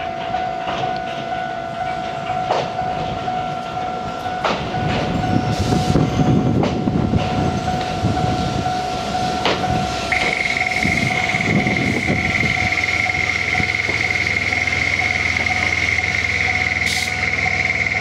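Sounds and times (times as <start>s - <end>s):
electric train rumble: 0.0s - 18.0s
train wheels clacking over rail joints: 1.9s - 3.2s, 6.5s - 18.0s
steady high tone: 7.4s - 18.0s.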